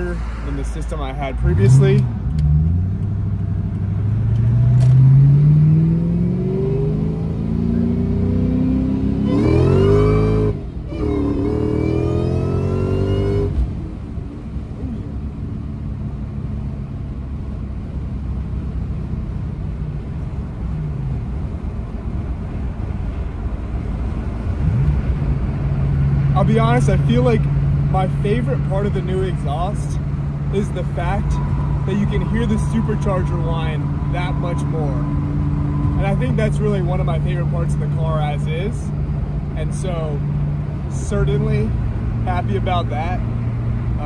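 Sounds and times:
supercharger whine: 0:00.6 - 0:17.6
car engine accelerating: 0:01.3 - 0:44.0.

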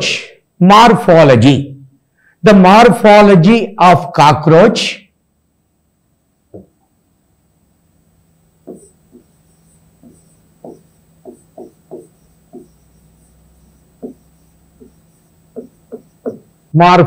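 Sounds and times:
stylus tapping on whiteboard screen: 0:06.5 - 0:06.8, 0:08.6 - 0:16.6.

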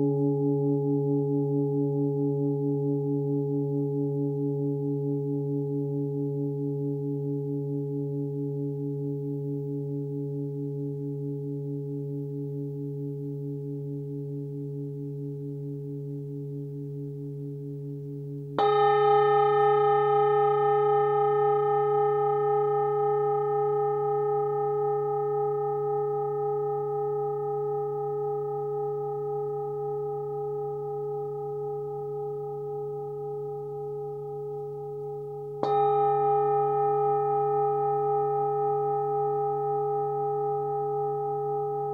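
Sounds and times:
singing bowl ringing: 0:00.0 - 0:41.9
singing bowl strike: 0:09.0 - 0:41.9.

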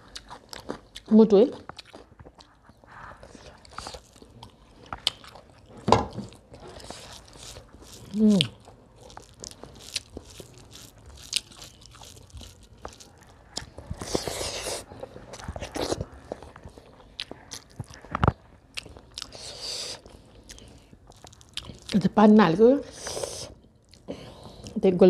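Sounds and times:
person chewing food: 0:00.0 - 0:22.0, 0:22.9 - 0:24.8.

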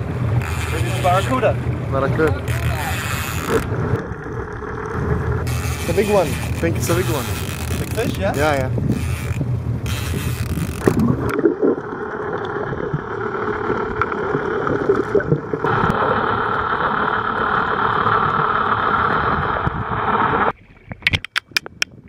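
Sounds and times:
underwater water rushing: 0:00.0 - 0:22.0
sharp clicks: 0:21.0 - 0:22.0.

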